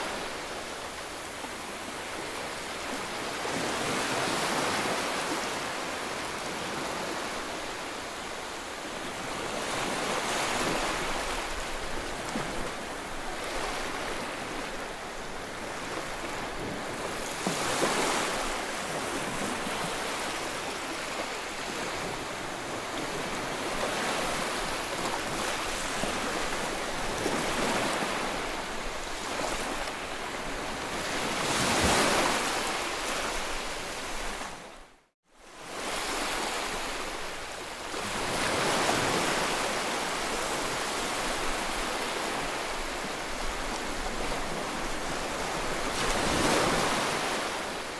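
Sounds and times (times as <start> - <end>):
sea waves washing at shore: 0.0 - 34.8, 35.5 - 47.9.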